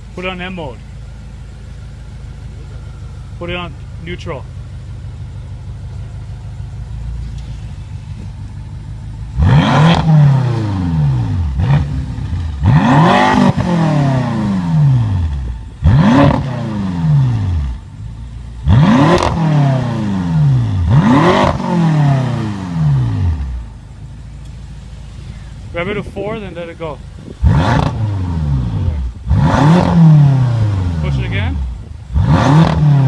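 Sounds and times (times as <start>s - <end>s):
car engine idling and revving: 0.0s - 33.0s.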